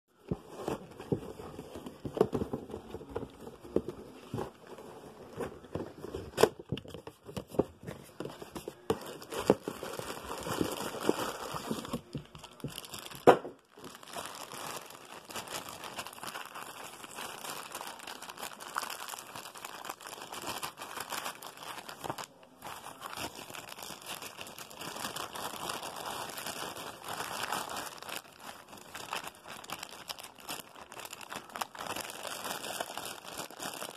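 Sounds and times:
cardboard box being handled: 0.2 - 13.0
plastic packaging crinkling: 0.2 - 33.9.

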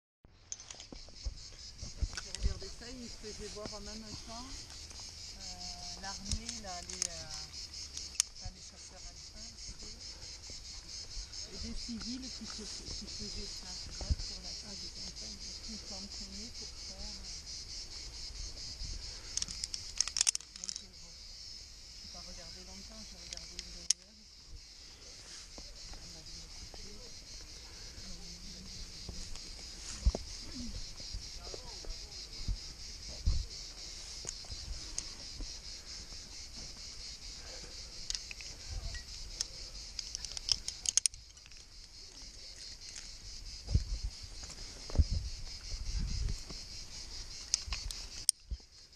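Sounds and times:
cicadas droning: 0.3 - 48.9
insects chirring: 0.3 - 48.9
carabiner clicking: 6.2 - 8.3, 19.3 - 20.9, 38.0 - 42.0, 47.4 - 48.4.

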